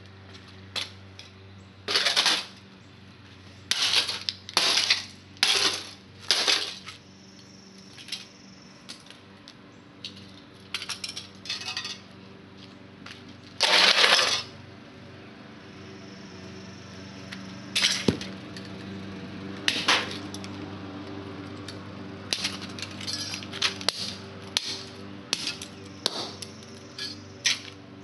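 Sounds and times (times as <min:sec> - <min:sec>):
metal parts clattering on concrete: 0:01.9 - 0:02.6, 0:03.7 - 0:07.0, 0:10.1 - 0:12.1, 0:13.6 - 0:14.5, 0:17.8 - 0:18.7, 0:22.3 - 0:23.9, 0:27.0 - 0:27.8
clinks of loose metal pieces: 0:10.0 - 0:12.1, 0:21.6 - 0:23.8.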